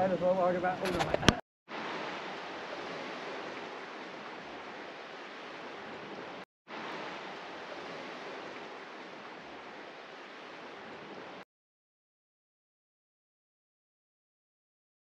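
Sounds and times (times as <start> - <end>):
sea surf rushing: 0.0 - 11.4.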